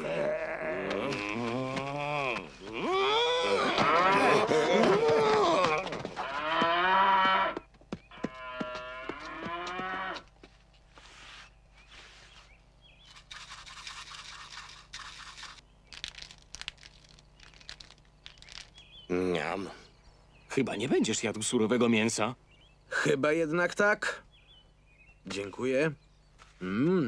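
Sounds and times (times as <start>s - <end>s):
cow bellowing: 0.0s - 10.3s.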